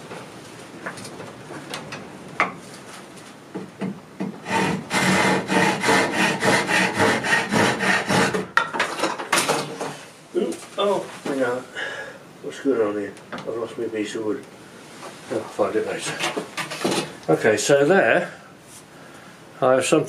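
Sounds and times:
hand saw cutting wood: 4.4s - 8.5s.

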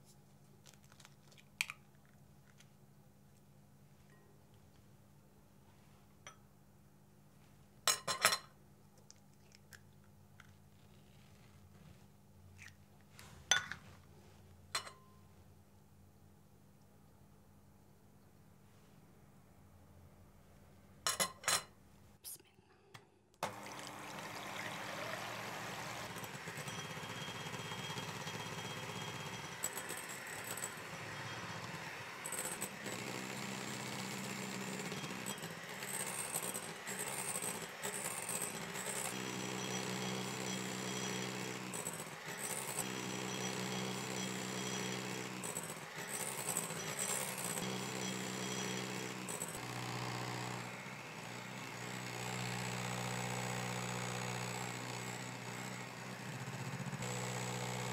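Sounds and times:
electric mixer running: 23.4s - 57.9s.

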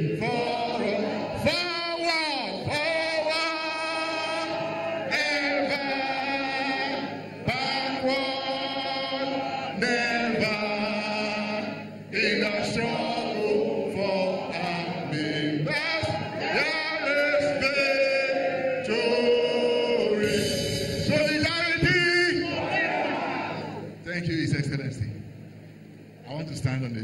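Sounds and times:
group of voices singing: 0.0s - 23.9s
man singing into a microphone: 9.8s - 18.3s.

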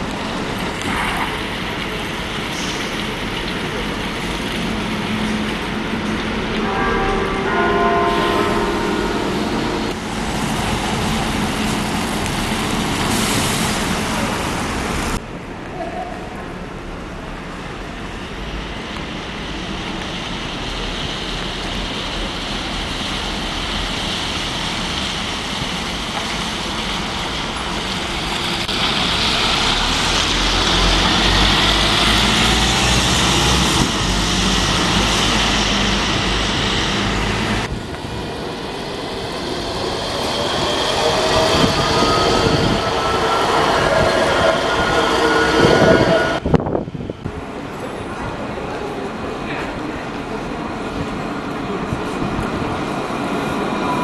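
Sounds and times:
bus engines humming: 0.0s - 54.0s
tram motor whine: 27.7s - 47.2s.

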